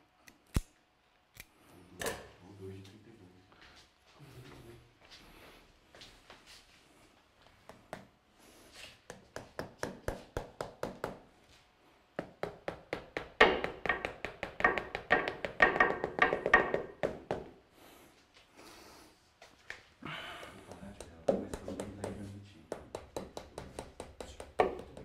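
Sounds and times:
rapid tapping on a pot: 12.2 - 17.5, 20.7 - 25.0.

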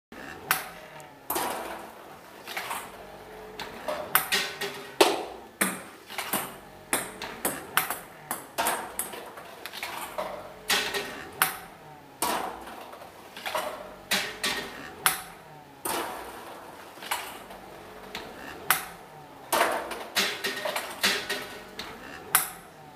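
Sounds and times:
robot arm striking balls: 2.8 - 9.2, 10.0 - 12.7, 13.6 - 16.4, 17.2 - 22.8
ping pong balls bouncing on table: 3.6 - 9.2, 10.7 - 12.6, 18.1 - 19.0, 19.6 - 22.7.

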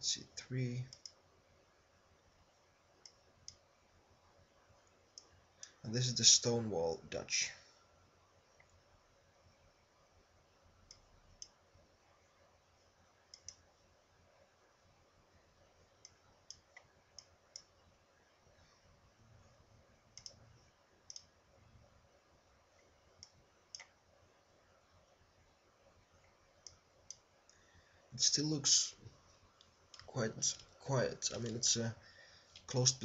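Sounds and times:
computer mouse button clicking: 20.2 - 20.4.

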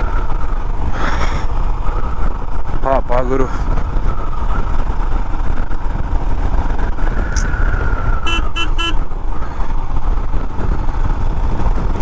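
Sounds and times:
motorcycle engine rumble: 0.0 - 12.0
horn beeps: 8.2 - 9.0.

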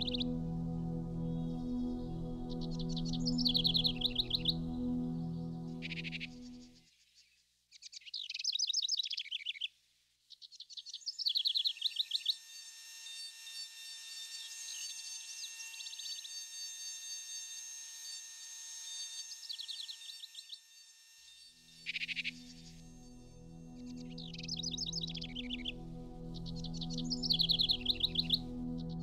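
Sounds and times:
steady high hiss: 0.0 - 6.8, 21.6 - 29.0
songbirds trilling: 1.2 - 6.6, 23.8 - 29.0.

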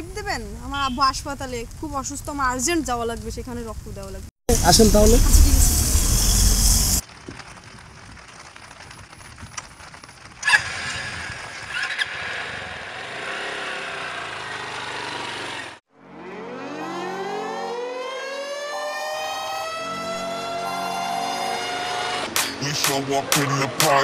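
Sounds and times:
road noise: 0.0 - 18.5, 21.3 - 24.0
rising siren-like wail: 16.0 - 22.3.

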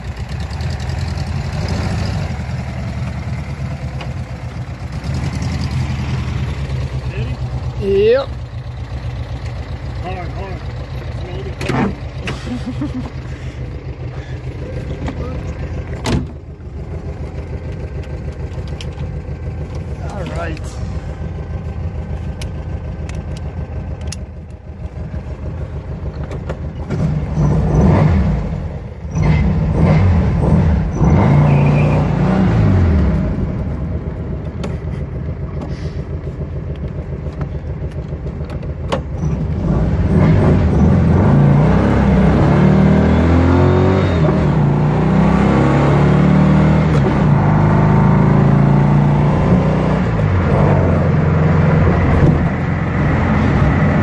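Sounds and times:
car engine accelerating hard: 0.0 - 4.3, 26.8 - 37.0, 39.2 - 54.0.

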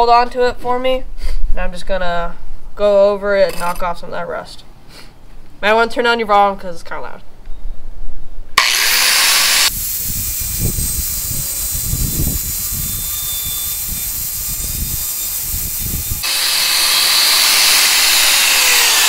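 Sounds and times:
angle grinder running free: 8.6 - 19.0.

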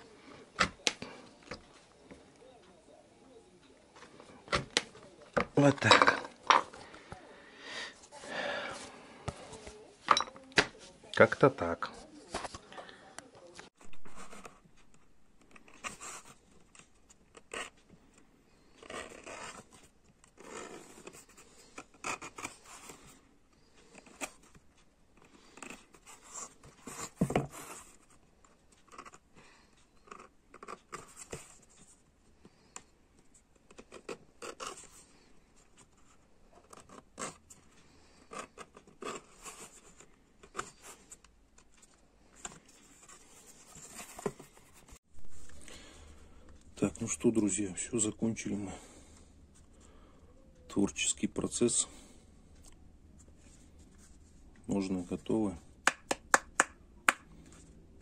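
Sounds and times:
tool scraping leather: 18.8 - 23.1.

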